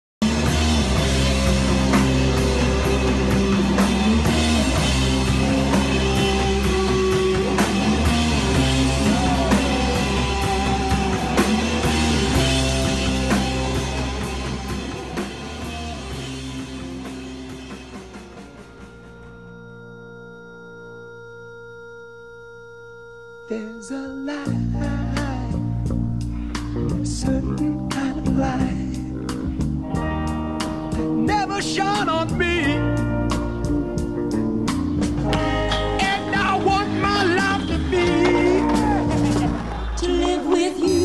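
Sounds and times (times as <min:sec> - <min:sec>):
drum kit hitting hard: 0:00.2 - 0:19.6
rock band playing loud: 0:00.2 - 0:20.4, 0:24.4 - 0:41.0
distorted electric guitar: 0:00.2 - 0:41.0.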